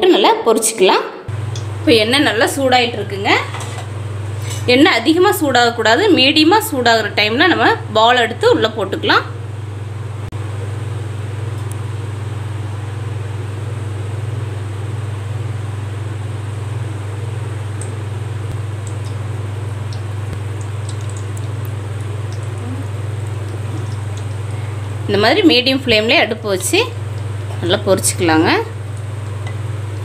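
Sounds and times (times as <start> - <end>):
steady low hum: 1.1 - 30.0
oil ticking: 1.3 - 1.8, 16.5 - 30.0
dough balls frying in oil: 1.3 - 30.0.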